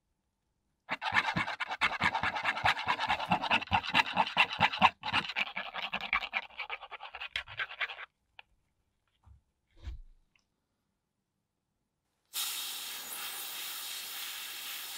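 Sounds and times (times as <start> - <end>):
brush scratching paper cup: 0.9 - 8.1.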